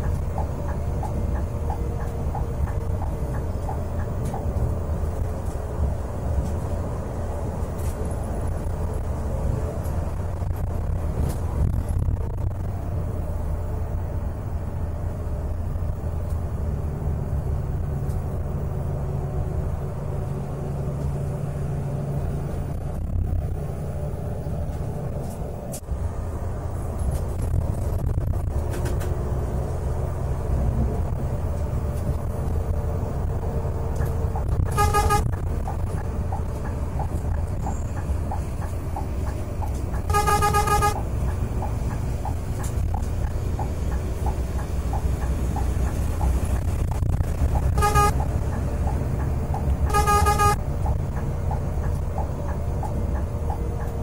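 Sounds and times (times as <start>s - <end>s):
bus engine and road drone: 0.0s - 54.0s
bus horn: 34.6s - 35.5s, 40.0s - 41.2s, 47.7s - 48.4s, 49.8s - 50.6s.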